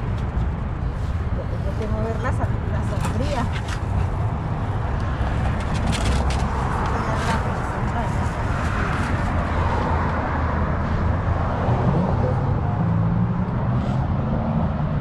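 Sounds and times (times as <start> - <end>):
road traffic rumble: 0.0 - 15.0
wavering engine hum: 0.0 - 15.0.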